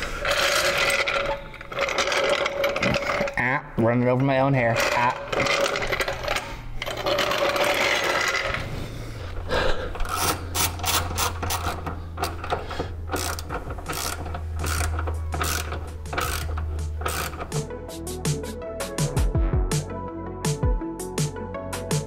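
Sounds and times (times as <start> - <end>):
socket ratchet clicking: 10.0 - 17.7.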